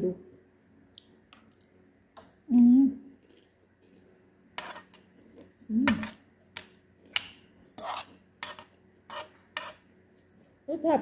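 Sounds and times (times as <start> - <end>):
spoon scraping ceramic plate: 4.6 - 5.1, 7.1 - 9.9.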